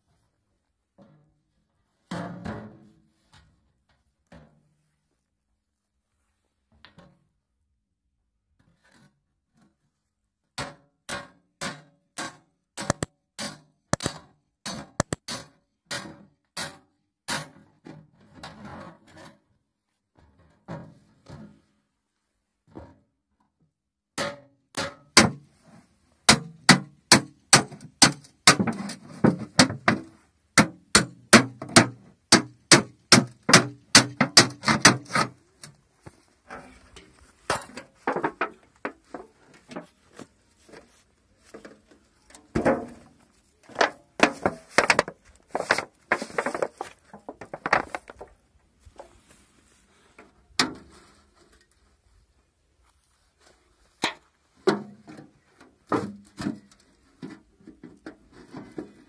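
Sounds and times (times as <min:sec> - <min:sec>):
machete chopping tin cans: 0:26.3 - 0:29.0, 0:30.6 - 0:35.3.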